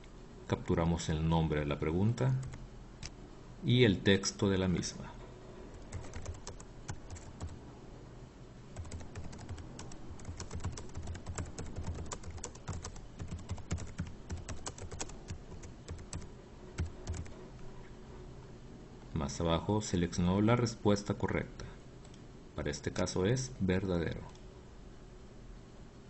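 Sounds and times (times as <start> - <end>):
typing on keyboard: 5.7 - 7.6, 8.8 - 17.4.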